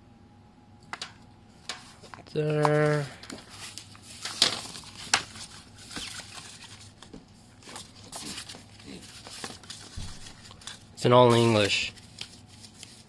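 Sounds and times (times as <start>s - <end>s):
paper pages rustling: 1.6s - 13.0s.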